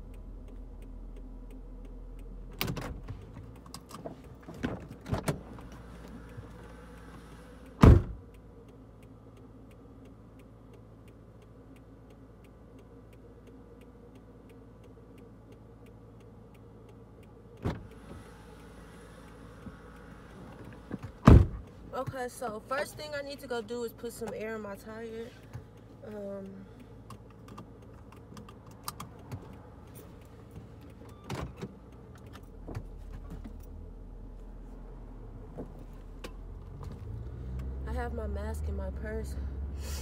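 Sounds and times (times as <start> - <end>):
faint regular ticking: 0.0 - 39.7
car door thump: 7.8 - 8.2, 17.6 - 17.9, 20.9 - 21.6.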